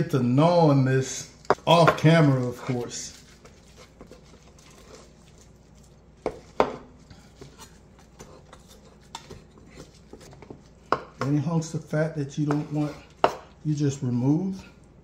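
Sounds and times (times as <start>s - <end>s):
knife scraping on cutting board: 2.0s - 11.1s, 12.4s - 13.5s.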